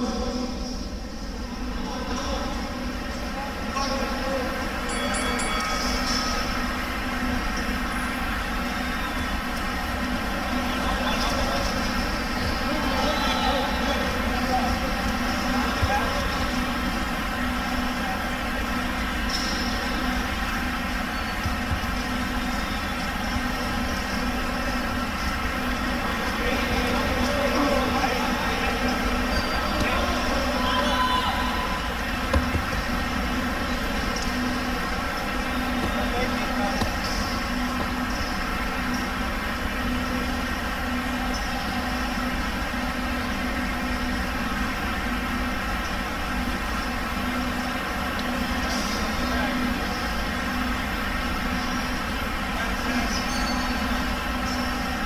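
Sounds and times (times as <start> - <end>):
mechanical hum with low rumble: 0.0 - 55.0.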